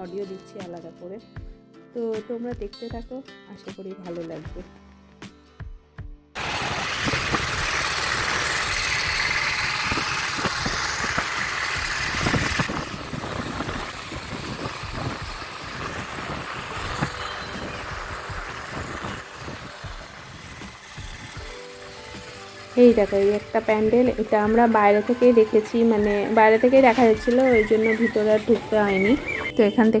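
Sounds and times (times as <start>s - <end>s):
wind and road noise: 6.4s - 29.6s
motorcycle running: 6.4s - 30.0s.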